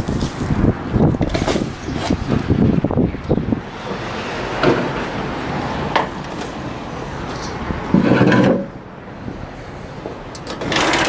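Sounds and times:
strong wind on microphone: 0.0 - 4.5.

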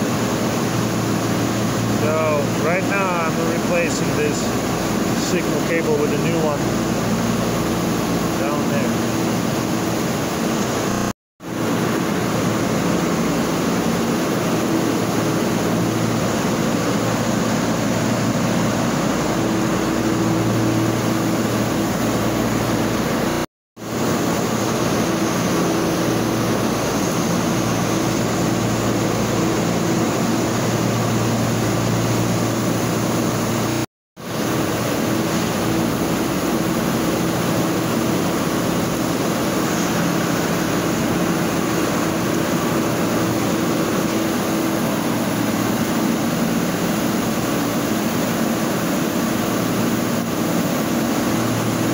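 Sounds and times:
machinery drone: 0.0 - 23.3.

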